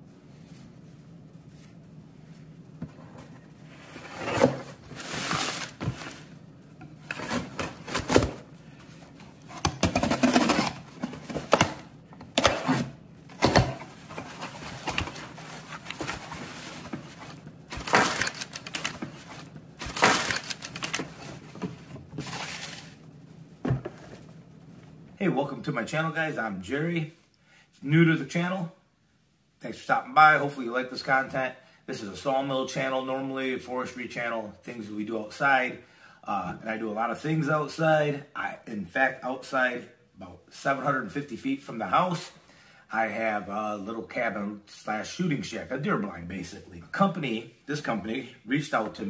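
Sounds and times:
cardboard rustling and scraping: 0:02.9 - 0:06.4, 0:07.0 - 0:23.0.

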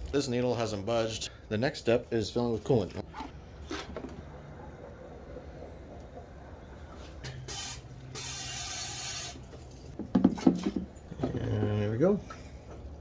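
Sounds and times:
coolant fill tool hissing: 0:07.5 - 0:09.4.

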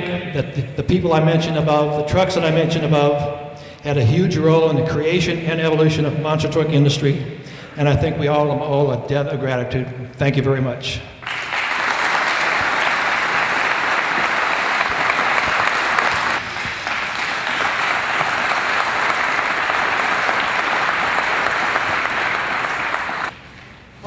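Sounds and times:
audience applauding: 0:11.2 - 0:23.4.

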